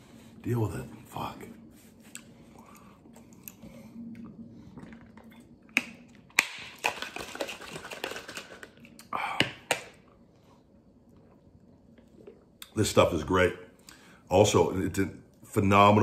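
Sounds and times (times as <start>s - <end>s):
shaker bottle rattling: 6.6s - 8.8s.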